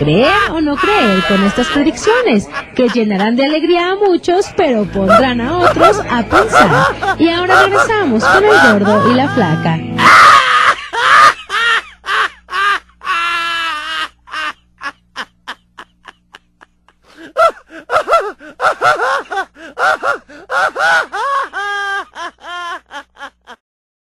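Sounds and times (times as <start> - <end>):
person laughing: 0.1 - 4.0, 5.1 - 23.6
quick gasping breaths: 17.0 - 21.0.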